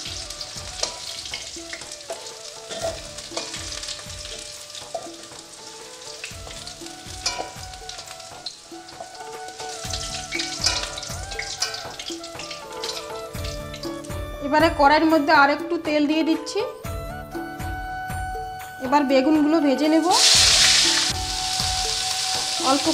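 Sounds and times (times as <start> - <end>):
food sizzling in oil: 0.0 - 14.4, 20.0 - 22.9
metal spatula scraping a pan: 0.7 - 3.8, 4.4 - 13.1.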